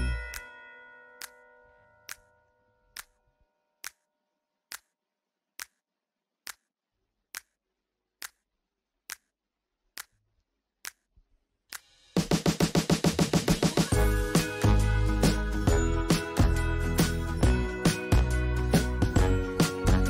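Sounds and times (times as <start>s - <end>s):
sharp ticks: 4.7s - 5.0s, 5.6s - 5.8s, 6.4s - 6.7s.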